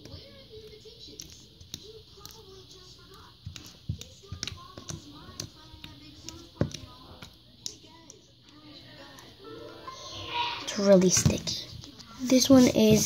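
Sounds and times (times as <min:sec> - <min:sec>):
fingers squishing slime: 0:00.0 - 0:08.2.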